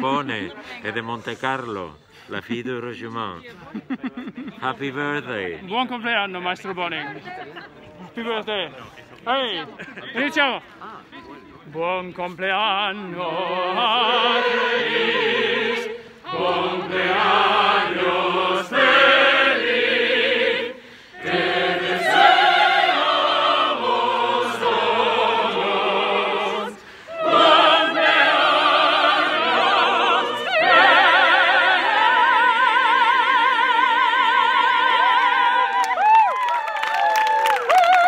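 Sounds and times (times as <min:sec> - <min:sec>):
opera singers singing together: 0:12.2 - 0:36.0.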